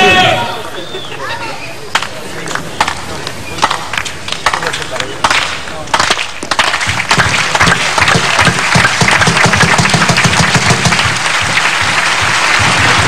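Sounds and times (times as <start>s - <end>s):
crowd applauding: 3.6s - 13.0s.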